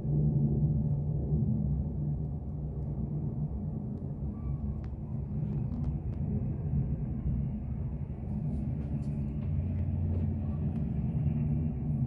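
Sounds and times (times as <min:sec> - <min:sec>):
distant traffic: 0:00.0 - 0:12.0
jet engines droning: 0:00.0 - 0:12.0.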